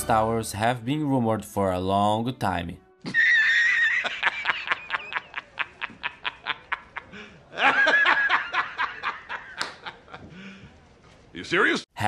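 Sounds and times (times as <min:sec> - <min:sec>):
man laughing hard: 0:03.0 - 0:10.4.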